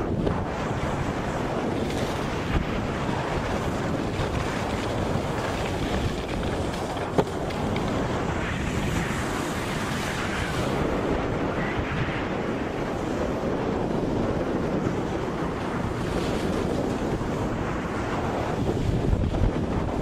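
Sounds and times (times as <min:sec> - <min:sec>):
wind rushing over microphone: 0:00.0 - 0:20.0.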